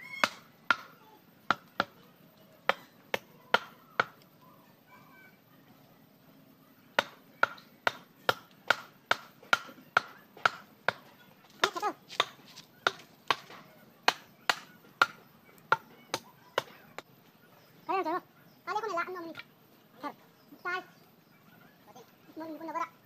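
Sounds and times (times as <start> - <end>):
hand tool chopping: 0.2 - 0.9, 2.7 - 4.2, 7.0 - 16.8.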